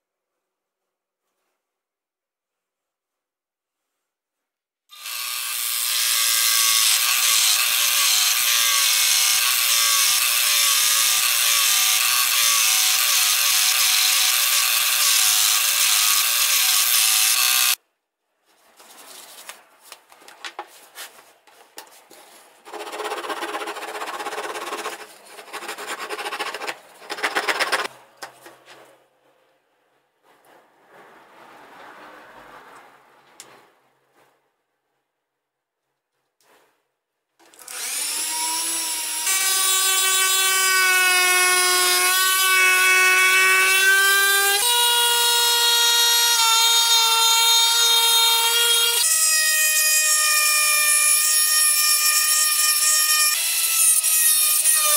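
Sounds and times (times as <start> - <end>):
rubbing and scraping noises: 2.4 - 4.6, 18.4 - 34.6, 36.1 - 37.0
scroll saw cutting wood: 4.9 - 17.8, 22.6 - 27.9, 37.4 - 54.9.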